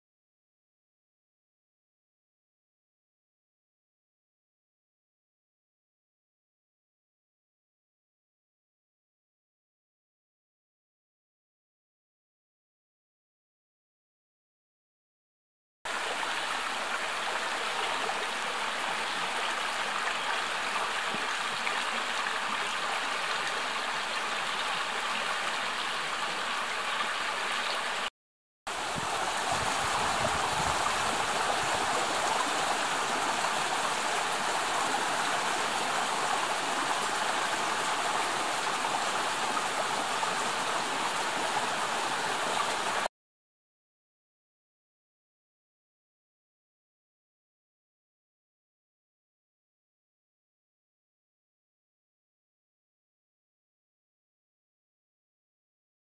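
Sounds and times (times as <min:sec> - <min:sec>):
stream flowing over rocks: 0:15.9 - 0:28.1, 0:28.7 - 0:43.1.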